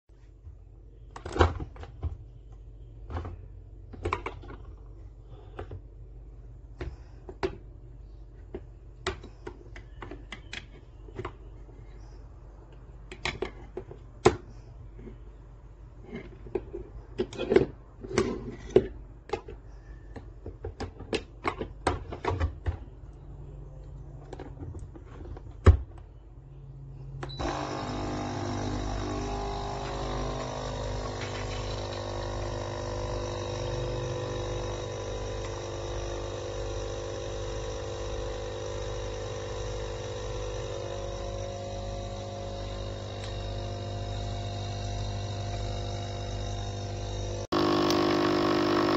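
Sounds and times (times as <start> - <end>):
coffee machine pump buzzing hum: 27.2 - 48.9.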